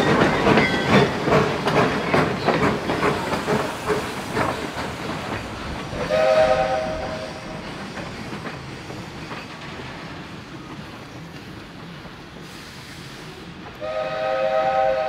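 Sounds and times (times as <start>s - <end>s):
train noise: 0.0s - 15.0s
steam locomotive whistle blast: 6.0s - 7.5s, 13.8s - 15.0s.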